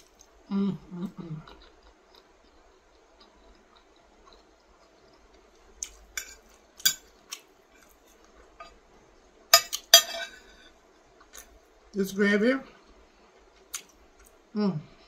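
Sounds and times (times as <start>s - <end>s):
metal fork clinking on plate: 9.6s - 10.4s.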